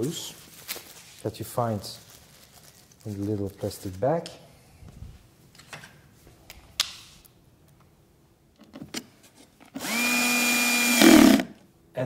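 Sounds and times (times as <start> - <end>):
cordless drill motor whine: 9.8 - 11.5.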